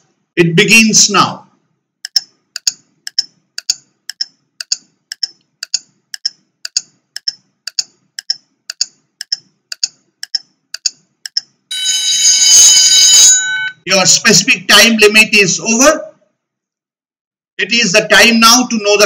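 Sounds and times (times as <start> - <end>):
countdown timer ticking: 2.0 - 11.6.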